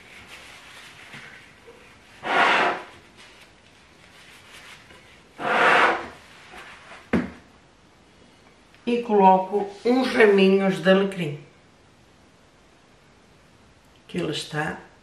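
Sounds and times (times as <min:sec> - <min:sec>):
plate scraping across wooden table: 0:02.2 - 0:02.9, 0:05.4 - 0:06.2.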